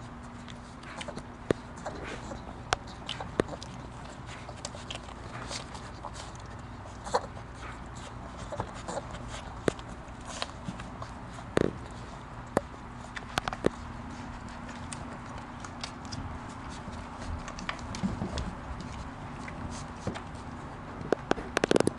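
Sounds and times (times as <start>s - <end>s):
low steady hum: 0.0s - 21.9s
smacks and sharp clicks: 0.4s - 13.8s, 14.5s - 21.9s
puppies squeaking: 4.7s - 7.6s.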